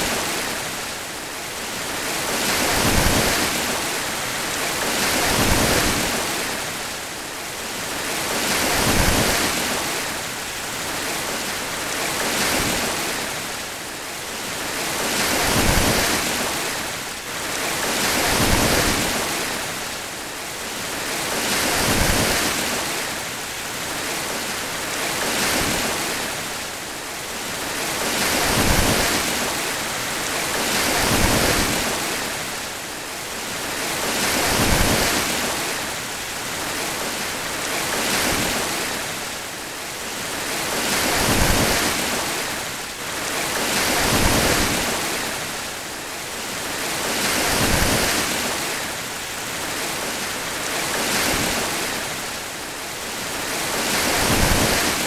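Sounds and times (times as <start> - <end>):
surf breaking on rocky shore: 40.3 - 45.6, 53.2 - 55.0.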